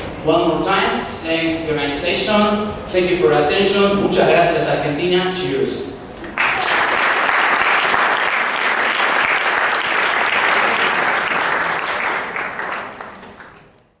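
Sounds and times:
audience applauding: 0:06.2 - 0:13.8.

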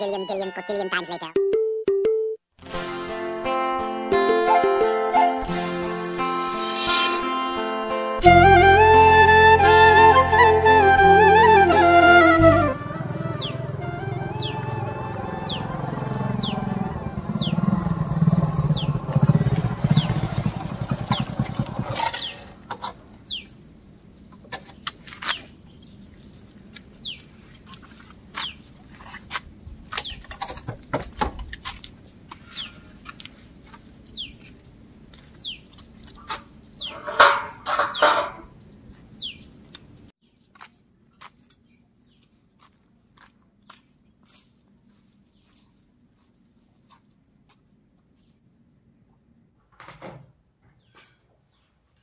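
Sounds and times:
motorcycle engine running: 0:12.7 - 0:22.6.

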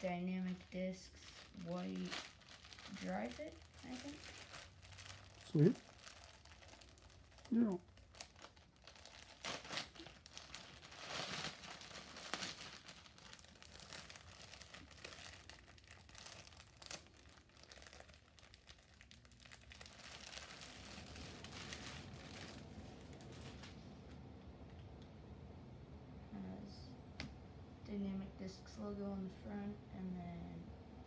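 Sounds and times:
plastic bag crinkling: 0:00.0 - 0:23.8.

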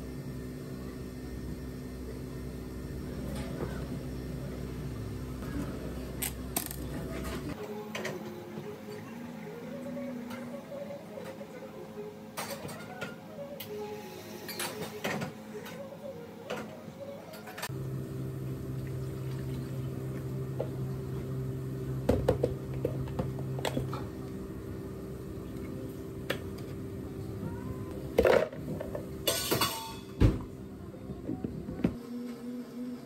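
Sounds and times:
steady low hum: 0:17.6 - 0:33.0.

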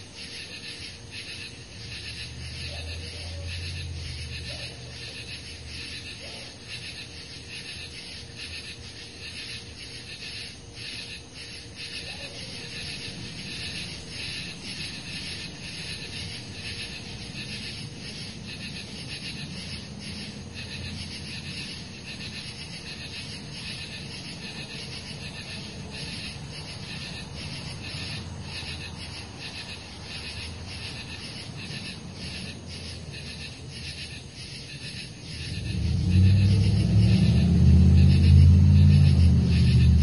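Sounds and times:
insects calling in pulses: 0:00.0 - 0:40.0
low background rumble: 0:35.1 - 0:40.0.

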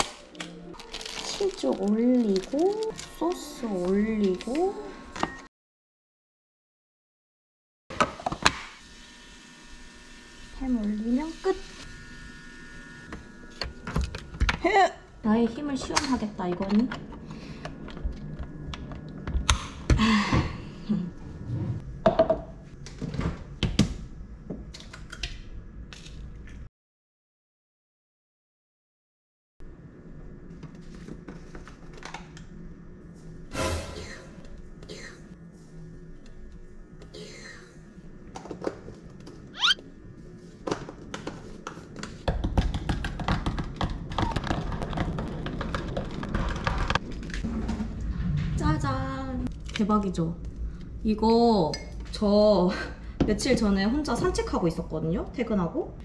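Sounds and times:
short rising squeak: 0:39.6 - 0:39.8.

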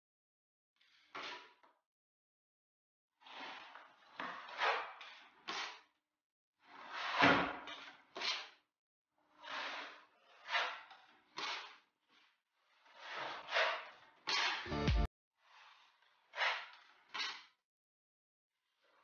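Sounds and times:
plastering knives scraping: 0:09.4 - 0:14.7, 0:15.4 - 0:17.5.

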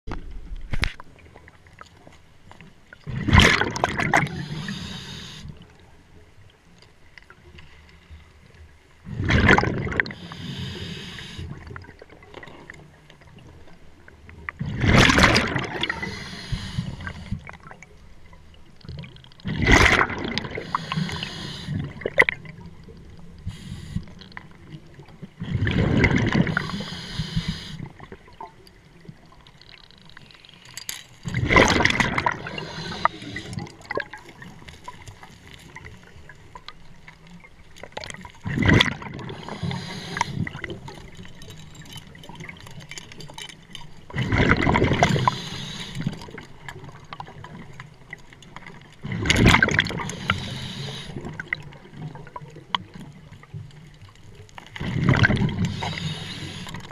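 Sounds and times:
regulator hiss: 0:04.4 - 0:05.5, 0:10.2 - 0:11.4, 0:16.0 - 0:17.4, 0:20.6 - 0:21.8, 0:23.5 - 0:24.1, 0:26.5 - 0:27.8, 0:45.2 - 0:46.0, 0:55.7 - 0:56.8
diver exhaling bubbles: 0:25.4 - 0:27.8, 0:31.3 - 0:34.2.

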